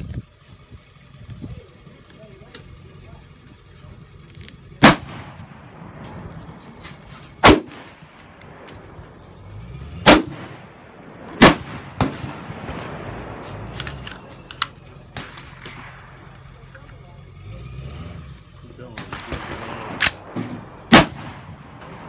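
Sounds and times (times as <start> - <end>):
rifle shots with echo: 4.8 - 6.4, 7.4 - 9.2, 10.0 - 16.6, 18.9 - 22.0.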